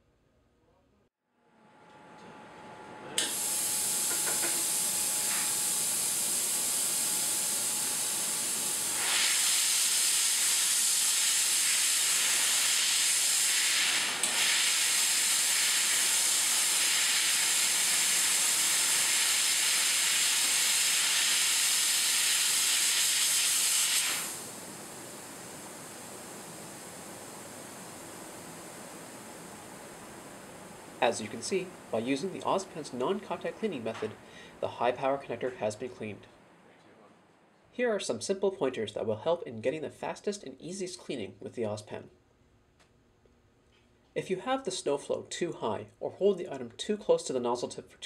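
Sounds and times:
nozzle spraying gas hiss: 3.2 - 32.6.

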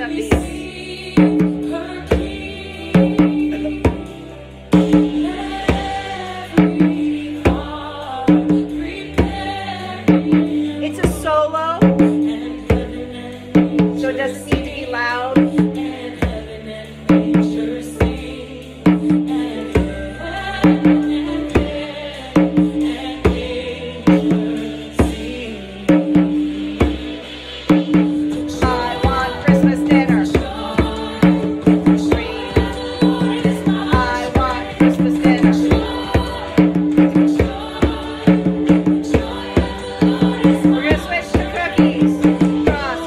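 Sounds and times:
recorded worship music with singing: 0.0 - 43.0
hand drum beat: 27.7 - 43.0.

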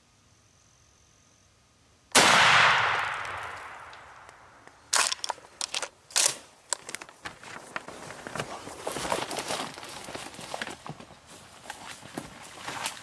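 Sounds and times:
shotgun blast: 2.1 - 4.6.

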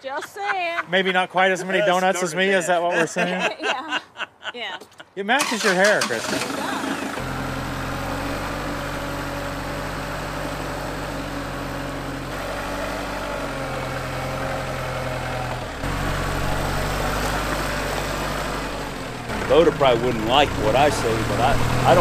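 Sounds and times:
tractor diesel engine idling: 5.4 - 22.0.

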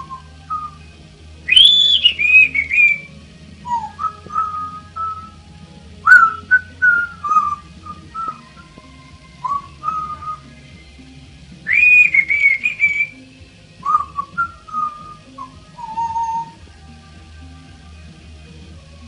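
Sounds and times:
parrot whistling: 0.0 - 5.4, 6.0 - 10.6, 11.6 - 16.6.

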